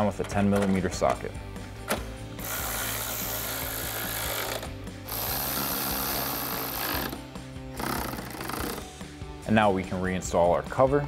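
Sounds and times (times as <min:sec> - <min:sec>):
electric ratchet running: 0:02.4 - 0:08.9.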